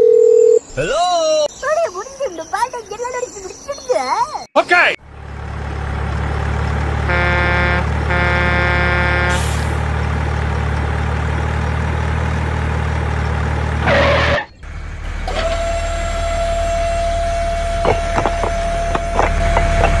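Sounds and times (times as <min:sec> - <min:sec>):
diesel truck engine rumbling: 0:04.6 - 0:20.0
engine whine: 0:05.0 - 0:20.0
truck horn honking: 0:05.7 - 0:10.2, 0:13.7 - 0:14.5, 0:15.4 - 0:20.0
air brake hiss: 0:09.3 - 0:09.8.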